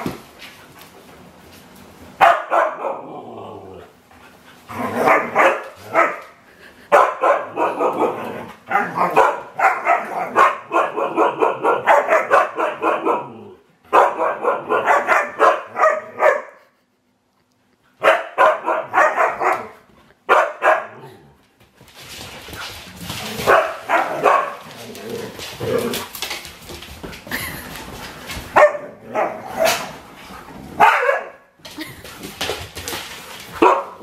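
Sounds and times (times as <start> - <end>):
dogs barking excitedly: 2.2 - 3.1, 4.3 - 16.8, 17.9 - 21.3, 22.5 - 26.4, 28.2 - 31.6, 33.0 - 34.0.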